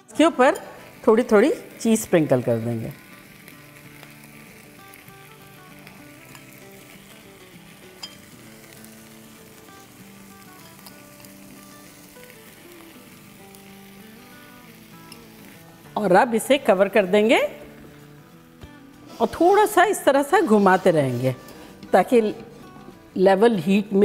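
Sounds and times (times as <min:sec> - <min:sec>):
food sizzling in oil: 0:00.0 - 0:24.0
soft background music: 0:00.0 - 0:24.0.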